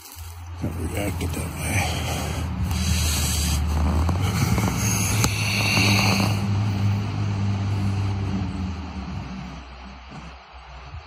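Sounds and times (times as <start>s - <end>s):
rustling through undergrowth: 0.0s - 5.9s
low droning hum: 0.2s - 11.0s.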